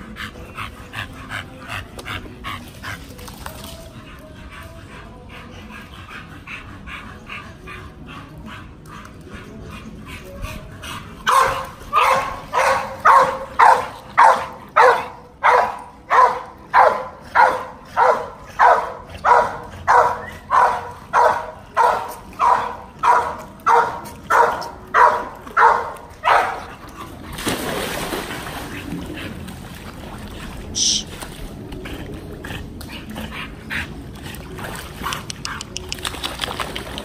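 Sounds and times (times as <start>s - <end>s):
dog barking: 11.3s - 26.7s.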